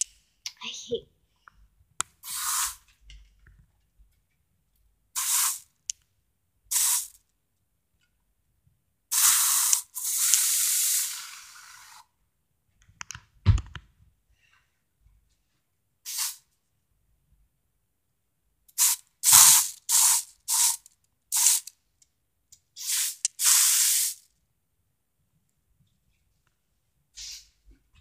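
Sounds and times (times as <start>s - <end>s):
air freshener spray hissing: 2.2s - 2.8s, 5.2s - 5.6s, 6.7s - 7.1s, 9.1s - 12.0s, 16.1s - 16.4s, 18.8s - 20.8s, 21.4s - 21.7s, 22.8s - 24.2s
short thump: 13.4s - 13.8s.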